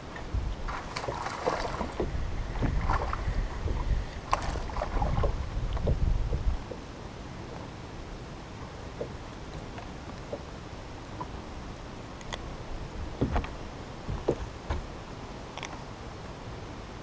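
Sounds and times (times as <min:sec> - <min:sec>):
wind buffeting microphone: 0:00.0 - 0:06.8
water lapping against boat hull: 0:00.1 - 0:06.9, 0:12.9 - 0:15.0.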